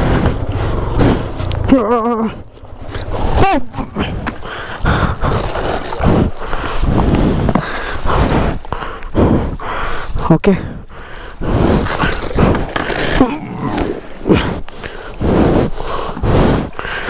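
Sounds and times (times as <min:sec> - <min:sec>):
people panting and grunting: 0:00.0 - 0:17.0.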